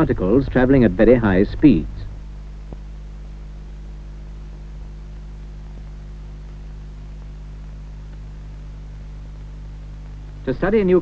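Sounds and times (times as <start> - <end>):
electrical mains hum: 0.0 - 11.0
faint hiss: 0.0 - 11.0.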